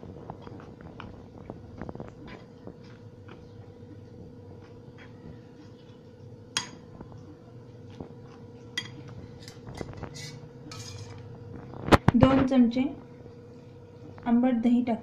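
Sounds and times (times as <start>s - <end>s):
metal spoon clinking and scraping bowl: 8.7s - 11.3s.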